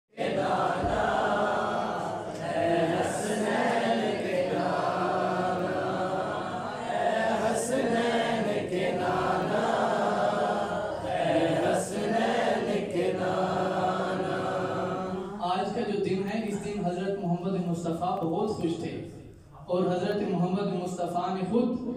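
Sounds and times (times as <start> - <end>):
men chanting into a microphone: 0.1 - 15.8.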